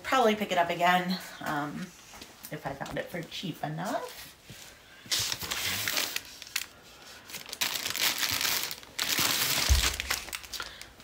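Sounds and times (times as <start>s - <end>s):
plastic bags crinkling and rustling: 3.8s - 11.0s.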